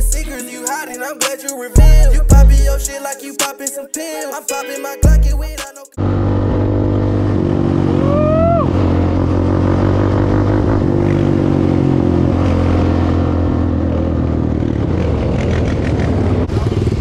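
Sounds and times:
quad two-stroke engine running: 13.5s - 17.0s.

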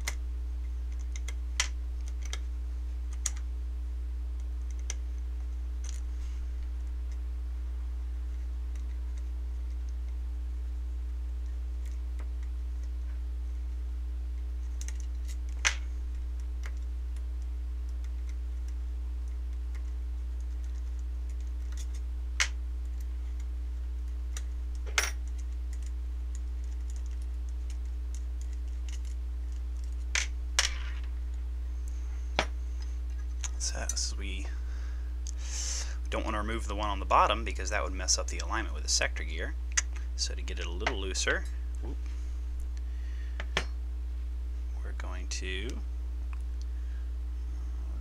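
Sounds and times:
light clicks of small parts: 0.0s - 2.5s, 3.1s - 3.5s, 14.4s - 34.5s
steady low hum: 0.0s - 48.0s.

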